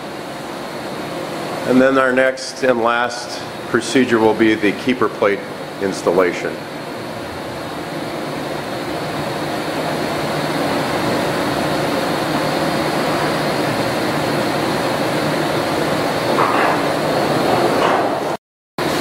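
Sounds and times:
machine hum with airy rush: 0.0 - 19.0.

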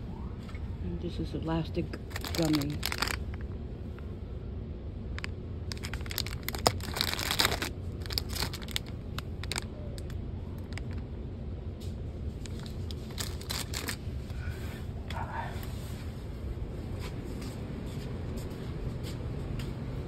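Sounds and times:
low background hum: 0.0 - 20.0
plastic packaging crinkling: 2.0 - 3.5, 5.2 - 11.0, 12.4 - 14.1.

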